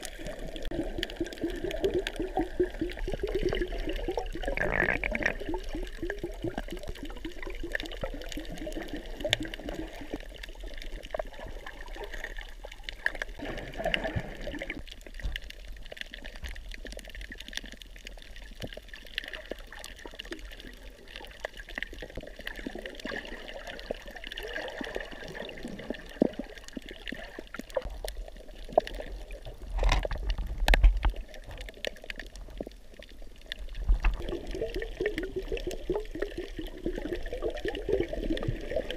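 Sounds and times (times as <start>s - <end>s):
rush of water: 0.0s - 38.9s
small underwater clicks: 0.0s - 38.9s
water bubbling underwater: 0.0s - 38.9s.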